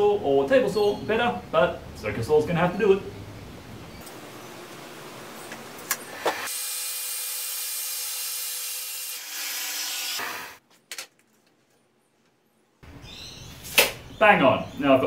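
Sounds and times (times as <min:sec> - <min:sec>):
circular saw cutting wood: 0:06.0 - 0:10.6.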